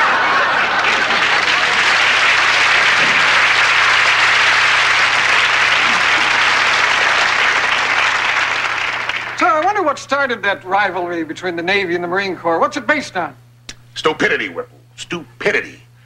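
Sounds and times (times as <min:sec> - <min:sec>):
studio audience applauding: 0:00.0 - 0:10.0.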